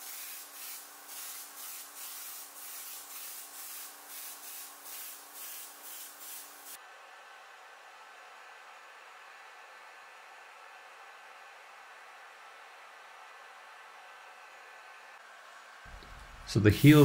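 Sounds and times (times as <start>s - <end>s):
heat gun hissing: 0.0s - 6.8s, 15.9s - 17.0s
heat gun motor hum: 15.9s - 17.0s.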